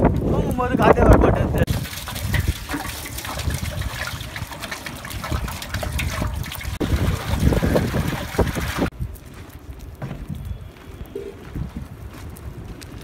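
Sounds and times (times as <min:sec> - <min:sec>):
water pouring into metal pot: 0:01.7 - 0:08.9.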